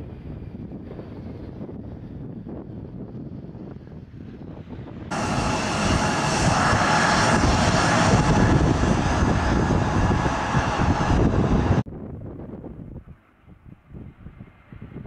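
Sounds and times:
jet engines rumbling and whining: 0.1s - 11.9s.

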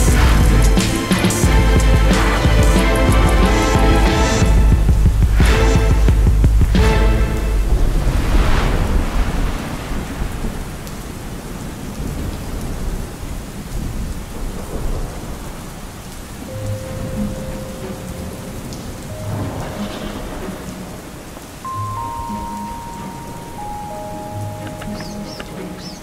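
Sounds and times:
low rumbling: 0.0s - 10.8s
thunder cracking: 0.0s - 16.3s, 17.0s - 21.4s
steady rain: 0.0s - 26.0s.

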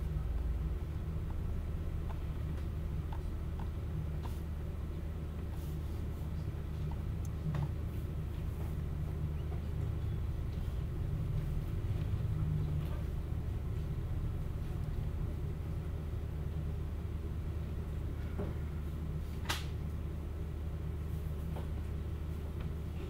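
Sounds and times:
low room hum: 0.0s - 23.0s
faint clicks and taps: 1.2s - 5.7s, 6.3s - 8.8s.

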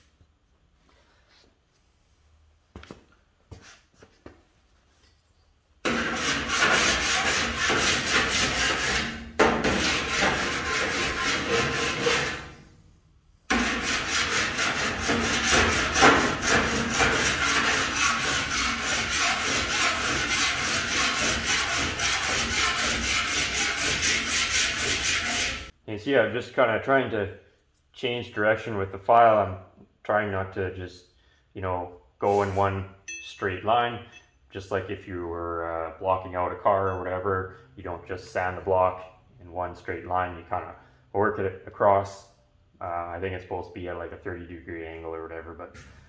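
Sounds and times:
file rasping on sheet steel: 5.8s - 12.7s, 13.5s - 25.7s.

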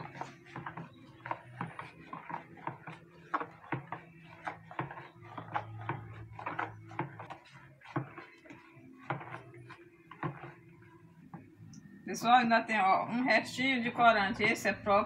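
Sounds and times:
spoon stirring in plastic basin: 0.0s - 11.8s.

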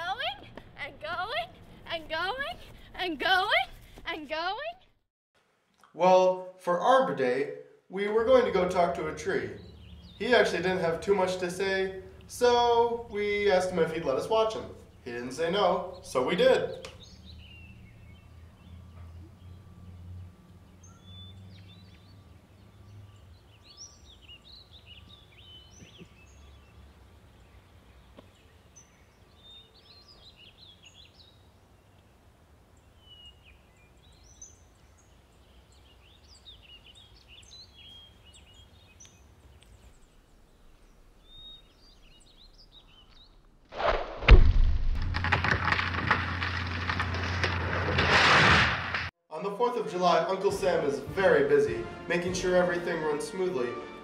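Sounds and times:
outdoor background noise: 0.0s - 52.7s
small birds chirping: 8.4s - 43.6s
loud rough noise: 45.0s - 49.1s.

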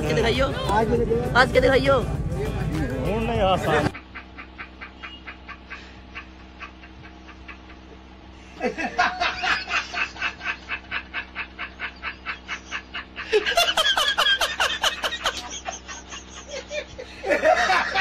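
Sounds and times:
man laughing hard: 3.8s - 18.0s.

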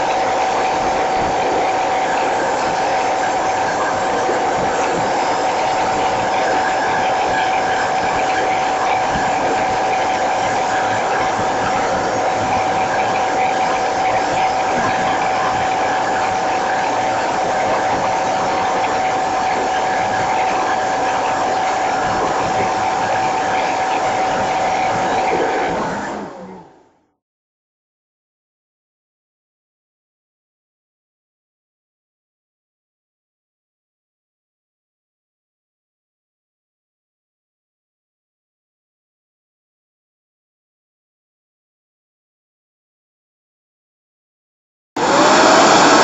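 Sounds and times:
high whine: 0.0s - 27.0s, 45.0s - 46.0s
leaf blower running: 45.0s - 46.0s.

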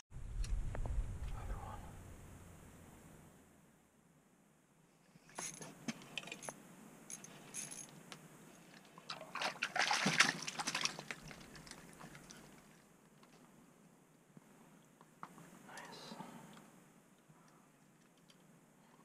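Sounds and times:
fishing rod clinks and rattles: 5.3s - 8.0s.

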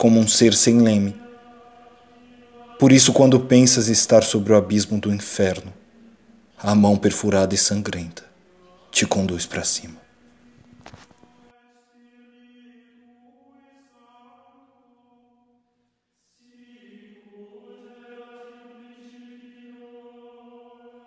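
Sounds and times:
chanted voices music: 0.0s - 21.0s.

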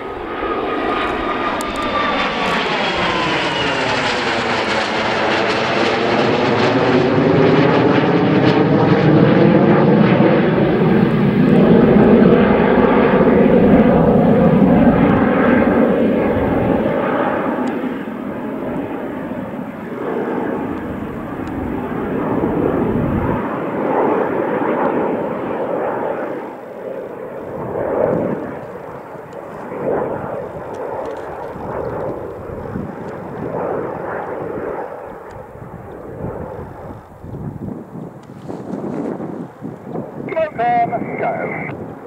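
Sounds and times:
jets flying past: 0.0s - 26.6s, 38.4s - 42.0s
jet engines whining and roaring: 0.0s - 42.0s.

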